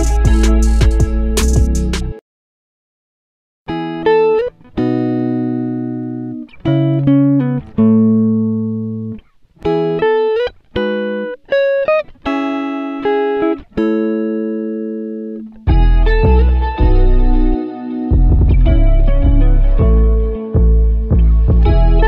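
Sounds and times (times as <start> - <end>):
plucked string melody: 0.0 - 2.2, 3.7 - 22.0.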